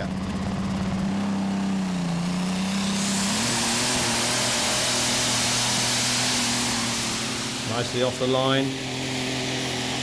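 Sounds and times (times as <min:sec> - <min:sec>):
tractor engine revving: 0:00.0 - 0:10.0
high whine: 0:01.8 - 0:09.2
rushing noise: 0:02.2 - 0:09.6.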